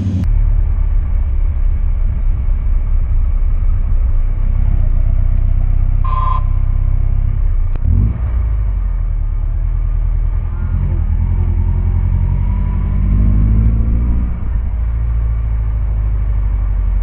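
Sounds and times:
motorcycle engine low rumble: 0.0 - 17.0
short high beep: 6.0 - 6.6.

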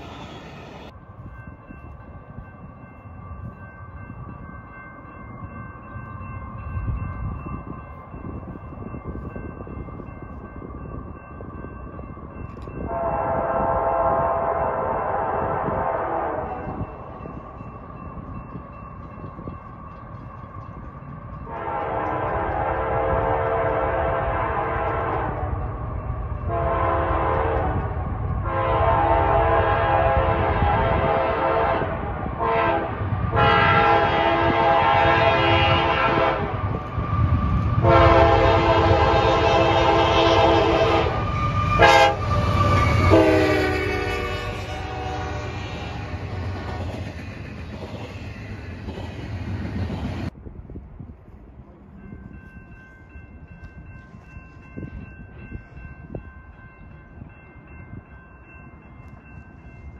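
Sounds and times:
train engine and wheels rumbling: 0.0 - 59.9
diesel locomotive horn blasts: 12.8 - 16.8, 21.5 - 25.7, 26.5 - 46.8.

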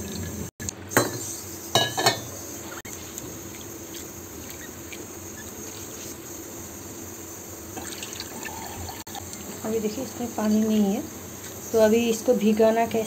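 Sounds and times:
faint steady hiss: 0.6 - 13.0
water sloshing in a bowl: 7.8 - 9.0.

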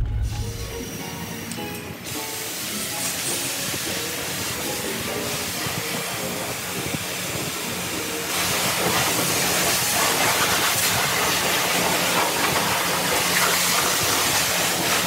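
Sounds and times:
low hum: 0.0 - 1.6
pressure washer spraying water: 2.0 - 15.0.

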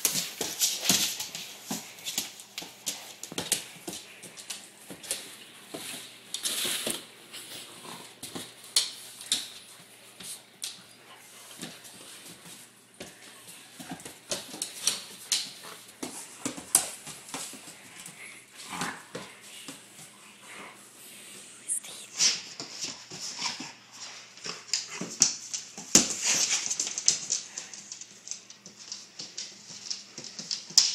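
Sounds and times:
dogs scuffling on wooden floor: 0.0 - 21.4, 22.1 - 30.9.

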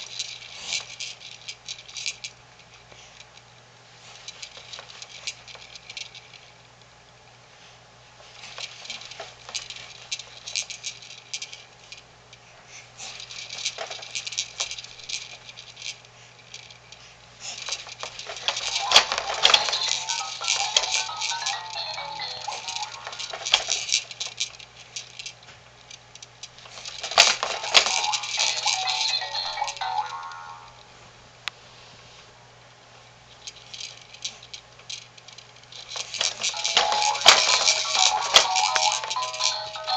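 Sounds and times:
plastic toys rattling and clicking: 0.0 - 3.4, 4.0 - 6.6, 8.2 - 30.8, 33.3 - 39.9
electronic toy tune: 18.8 - 23.2, 27.8 - 30.8, 36.5 - 39.9.

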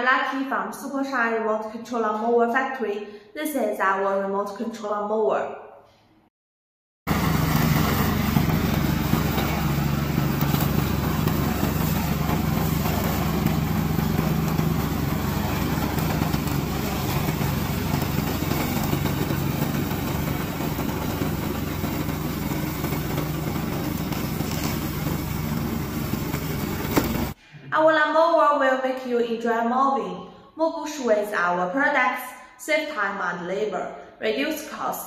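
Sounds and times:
mower engine humming: 7.1 - 27.4.

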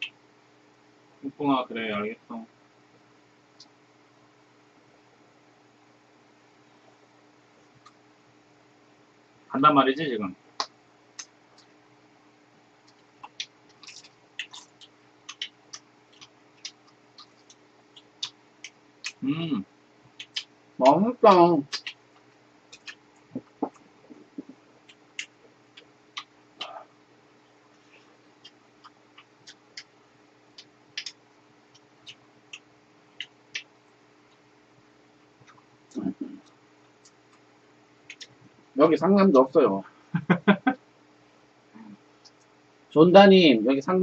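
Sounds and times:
faint steady hum: 0.0 - 44.0
people chewing: 12.8 - 26.9, 27.7 - 29.9, 30.5 - 33.7.

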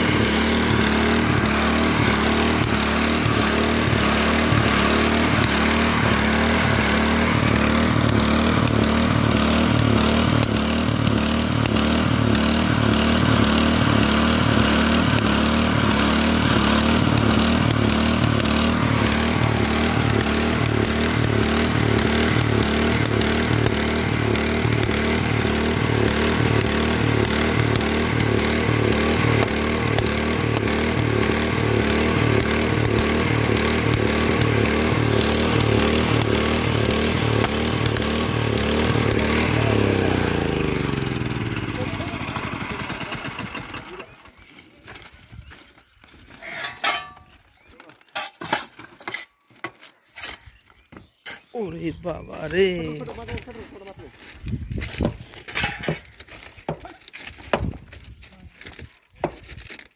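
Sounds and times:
rail grinding machine running: 0.0 - 44.2.

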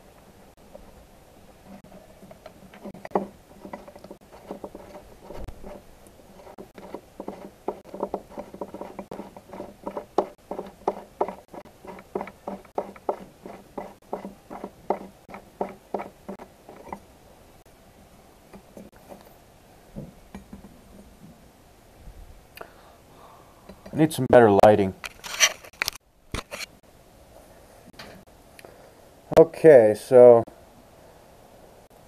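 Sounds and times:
light metal clicks and knocks: 20.0 - 21.3.

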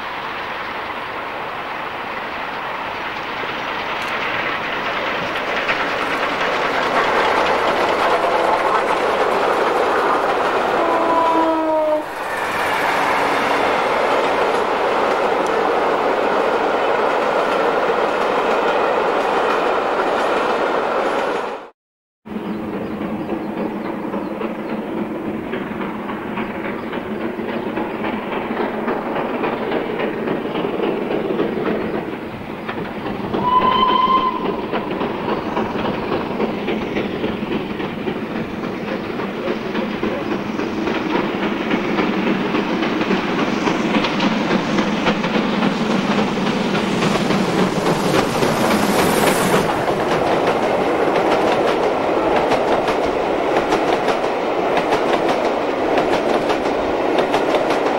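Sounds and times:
wheels clicking over rail joints: 2.2 - 11.5, 22.7 - 33.5, 34.3 - 57.9
steam whistle blast: 10.8 - 12.2, 33.4 - 34.7.

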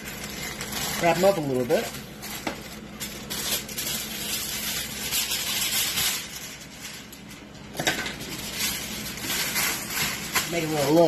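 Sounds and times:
aluminium foil crinkling: 0.0 - 11.0.

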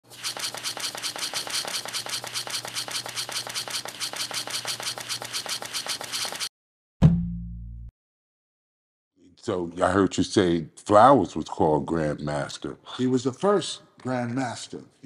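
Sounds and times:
rapid even clicking: 0.1 - 6.5.

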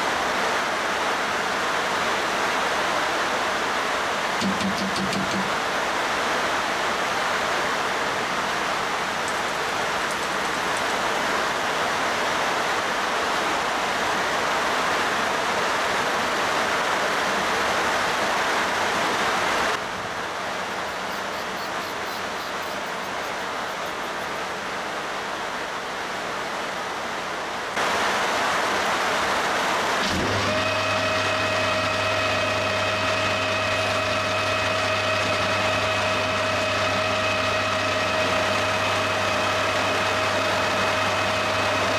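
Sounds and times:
steady rushing hiss: 0.0 - 30.0.

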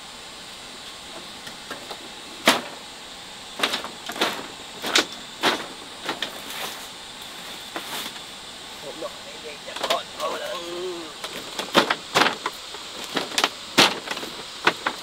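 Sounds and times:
steady high hum: 0.0 - 15.0
knocks and clatters: 3.6 - 6.5, 11.2 - 15.0.

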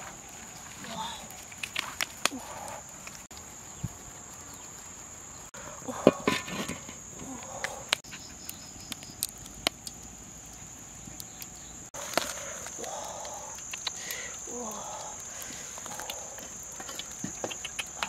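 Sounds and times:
insect chirring: 0.0 - 18.0
sharp clicks: 12.2 - 18.0.

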